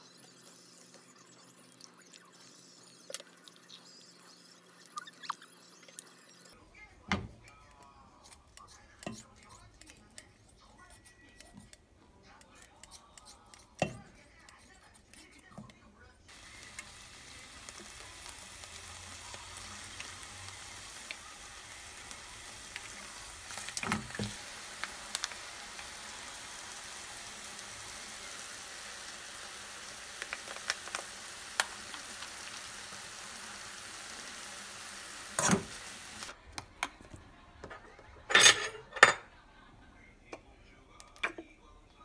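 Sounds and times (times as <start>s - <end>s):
squid sizzling in a frying pan: 16.3s - 36.4s.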